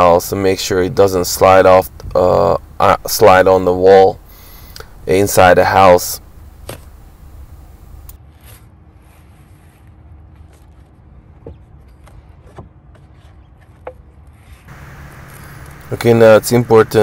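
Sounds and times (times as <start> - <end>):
low background rumble: 0.0 - 8.2, 14.7 - 17.0.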